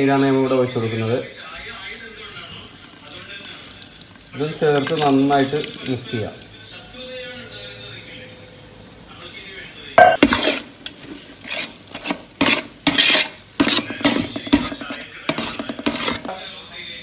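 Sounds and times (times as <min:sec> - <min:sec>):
wet paste stirring in pot: 0:01.8 - 0:06.5, 0:10.0 - 0:16.4.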